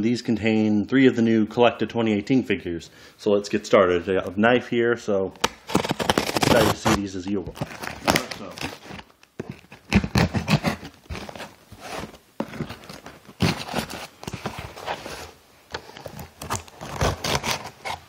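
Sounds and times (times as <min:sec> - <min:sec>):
knife cutting cardboard box: 0:05.4 - 0:18.0
rustling of packing paper: 0:05.6 - 0:18.0.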